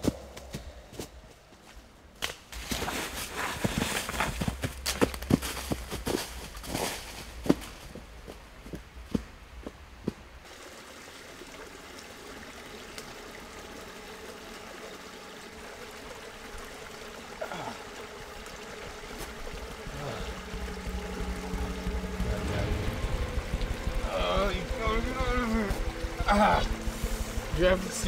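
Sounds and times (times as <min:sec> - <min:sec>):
footsteps on dry leaves: 0:02.6 - 0:08.1
steady rushing hush: 0:18.0 - 0:28.0
low rumble: 0:18.8 - 0:28.0.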